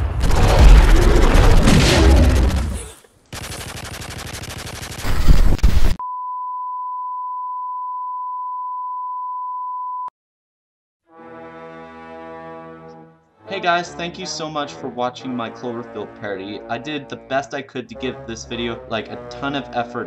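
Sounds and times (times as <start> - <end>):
loud rumbling: 0.0 - 2.8
buzzing glitch static: 3.4 - 6.0.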